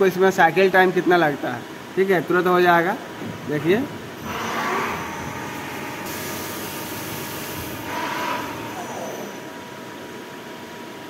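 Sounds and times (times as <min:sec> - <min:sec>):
steady machine whine: 0:00.0 - 0:11.0
lathe machine running: 0:04.2 - 0:09.6.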